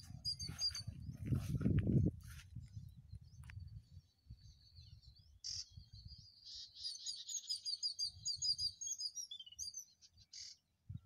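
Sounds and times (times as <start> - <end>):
wind rumble on microphone: 0.0 - 6.4
small birds chirping: 0.0 - 11.0.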